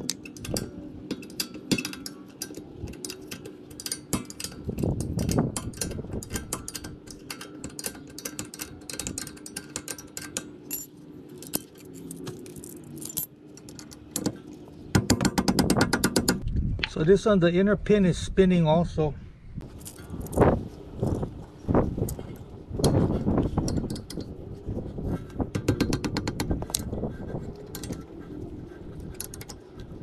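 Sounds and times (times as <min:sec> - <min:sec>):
metallic tool clicks and clinks: 0:00.0 - 0:13.9.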